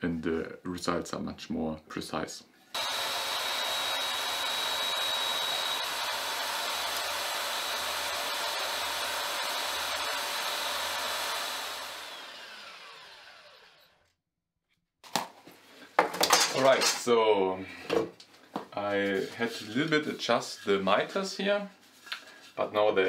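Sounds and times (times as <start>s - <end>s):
belt sander running: 2.8s - 14.1s.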